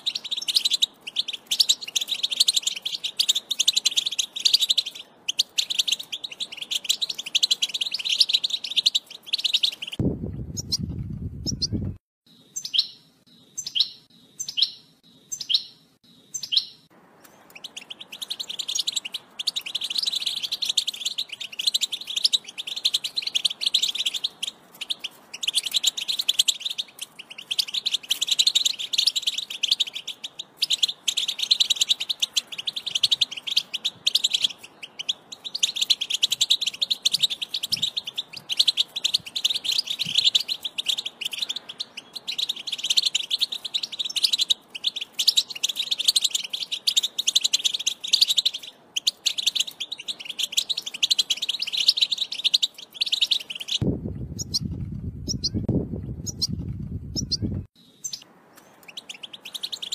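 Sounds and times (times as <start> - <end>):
goldfinch twittering song: 0.0 - 59.9
low rumble: 53.8 - 57.7.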